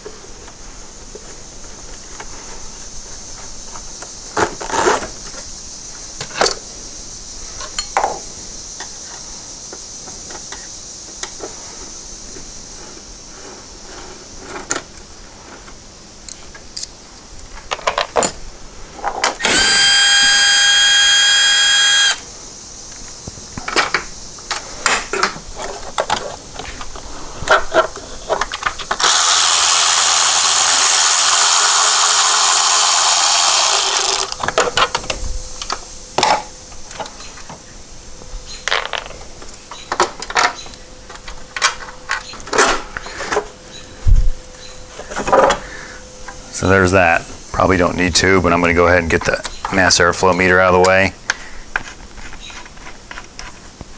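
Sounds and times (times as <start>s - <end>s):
power drill whining: 19.4s - 22.2s, 29.0s - 34.5s.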